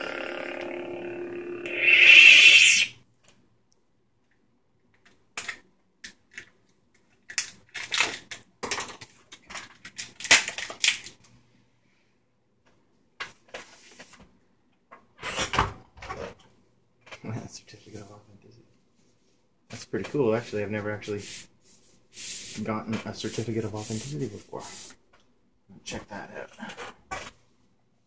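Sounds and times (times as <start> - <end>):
toy lightsaber electronic hum: 0.0 - 2.9
loud sound-effect burst: 1.7 - 2.9.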